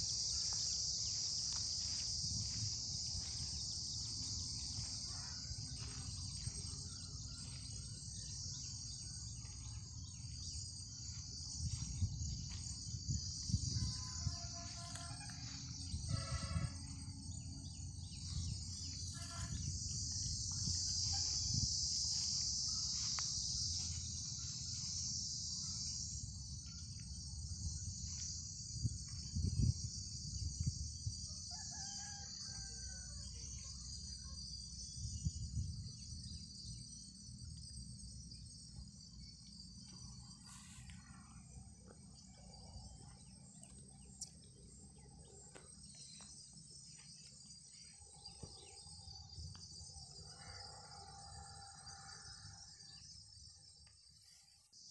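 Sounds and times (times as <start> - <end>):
wind rumble on microphone: 0.0 - 24.9, 25.6 - 33.6, 34.5 - 37.5
high-pitched insect chorus: 0.0 - 54.9.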